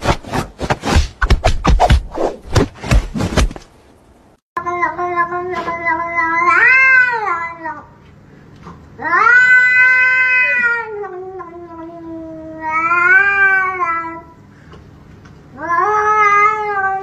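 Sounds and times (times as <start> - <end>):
cat yowling: 9.0 - 11.6, 15.6 - 17.0.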